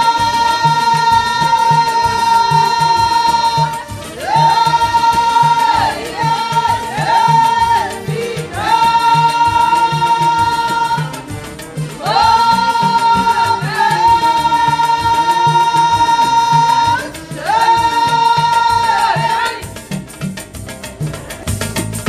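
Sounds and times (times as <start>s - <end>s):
steady drum beat: 0.0s - 22.0s
person singing long high notes: 12.0s - 19.6s.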